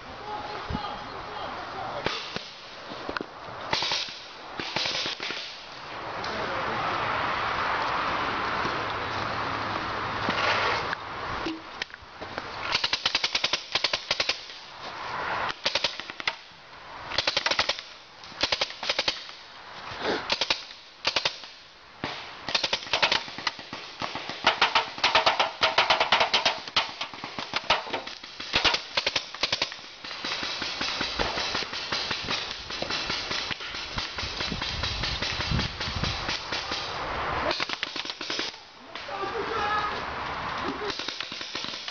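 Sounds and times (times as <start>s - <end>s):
paintball markers firing: 20.3s - 36.9s, 37.5s - 38.6s, 40.9s - 41.9s.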